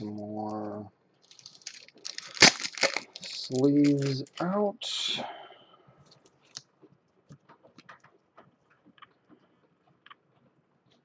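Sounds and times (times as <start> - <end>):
trading cards and cases clicking: 1.4 - 4.4.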